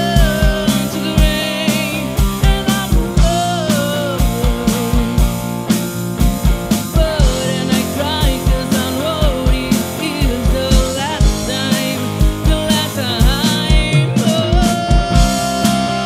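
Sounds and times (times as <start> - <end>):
woman singing: 0.0 - 5.4, 6.8 - 16.0
live rock band playing: 0.0 - 16.0
kick drum: 2.2 - 3.5.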